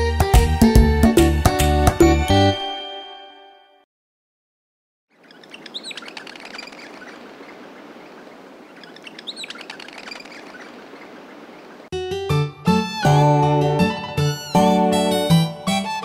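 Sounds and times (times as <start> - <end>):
small birds chirping: 5.1 - 11.9
held music chord: 12.0 - 16.0.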